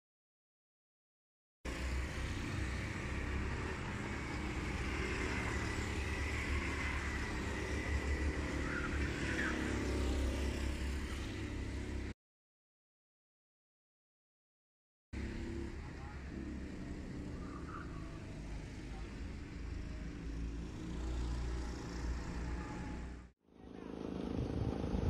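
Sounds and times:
distant go-kart engines droning: 1.7s - 12.1s, 15.2s - 25.0s.

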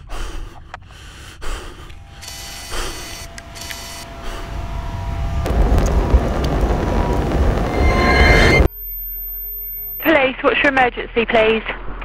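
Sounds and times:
drone motors whining: 1.7s - 10.1s
low rushing rumble: 1.9s - 8.7s.

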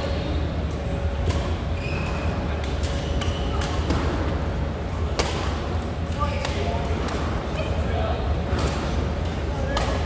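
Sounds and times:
rackets striking shuttlecock: 0.6s - 1.7s, 2.5s - 4.3s, 5.0s - 7.4s, 8.5s - 10.0s.

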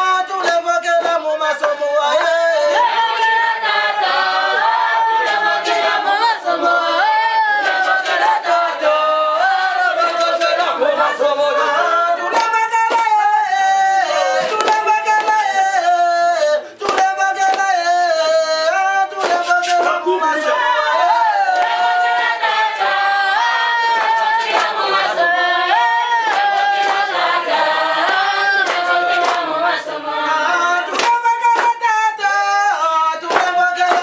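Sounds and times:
choir singing in harmony: 2.0s - 14.6s, 20.0s - 31.1s.

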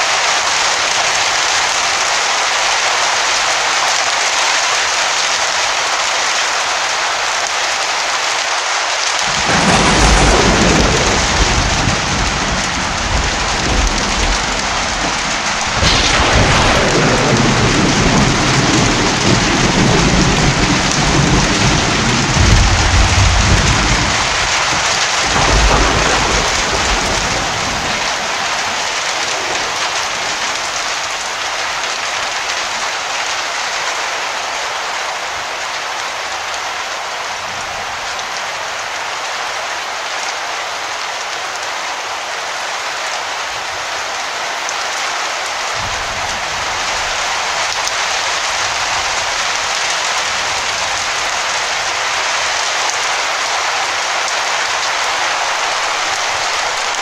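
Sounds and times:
heavy rain falling: 0.0s - 57.0s
thunder rumbling: 9.3s - 31.4s, 45.8s - 52.0s.

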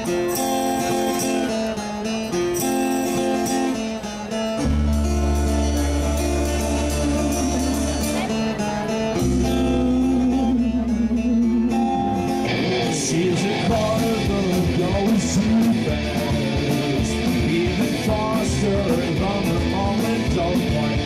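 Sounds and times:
live rock band playing: 0.0s - 21.0s
person singing: 4.7s - 21.0s.

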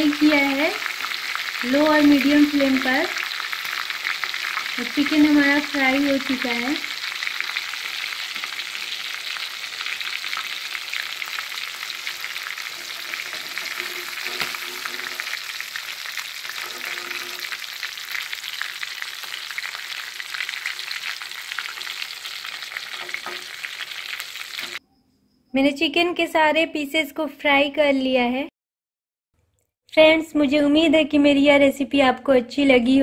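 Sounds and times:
chicken sizzling in hot oil: 0.0s - 24.8s.

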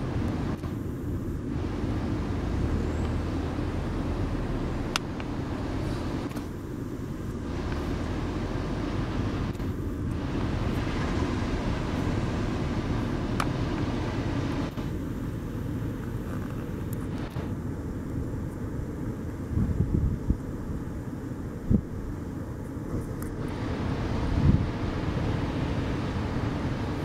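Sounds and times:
wind rumble on microphone: 0.0s - 27.0s
surf breaking: 9.6s - 14.9s.

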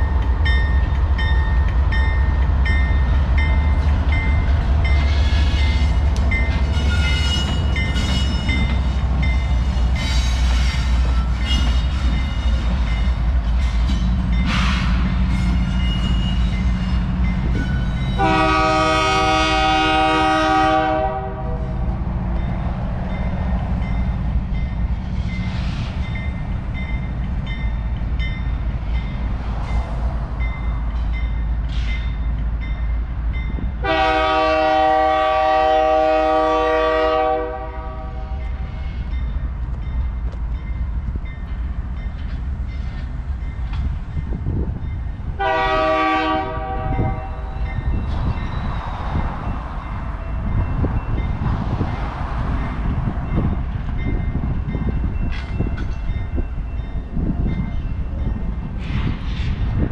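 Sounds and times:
locomotive air horn chord: 18.2s - 21.7s, 33.8s - 38.4s, 45.4s - 47.4s.

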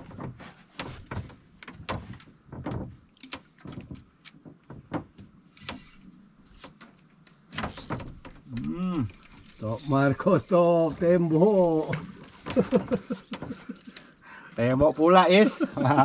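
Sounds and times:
sharp knocks and clicks: 0.0s - 6.0s, 6.6s - 9.4s, 11.9s - 14.0s.

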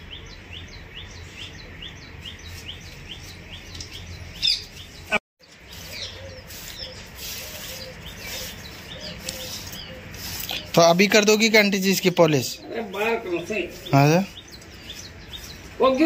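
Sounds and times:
birds chirping: 0.0s - 16.0s.

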